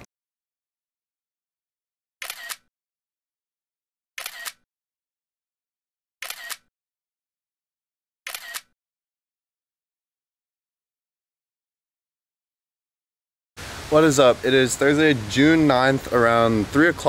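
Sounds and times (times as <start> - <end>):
camera shutter click: 2.2 - 2.7, 4.2 - 4.6, 6.2 - 6.7, 8.3 - 8.7.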